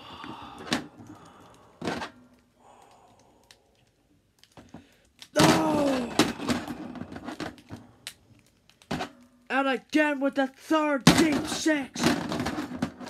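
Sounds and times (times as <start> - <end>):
person exclaiming ohh: 5.3 - 7.0.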